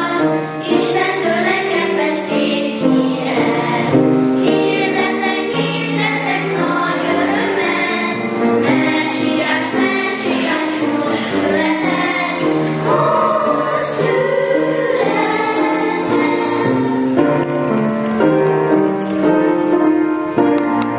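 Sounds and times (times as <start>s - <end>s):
choir singing: 0.0s - 17.6s.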